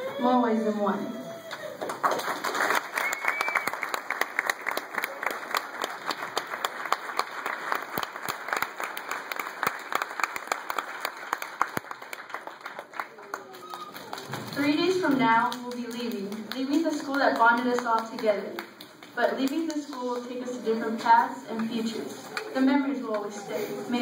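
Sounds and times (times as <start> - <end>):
audience applauding: 1.7 - 20.3.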